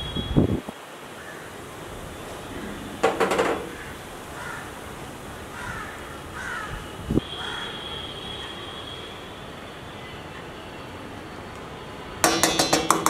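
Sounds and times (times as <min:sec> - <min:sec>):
bird calls: 0:01.1 - 0:07.8
wooden spoon clattering in steel bowl: 0:12.2 - 0:13.0.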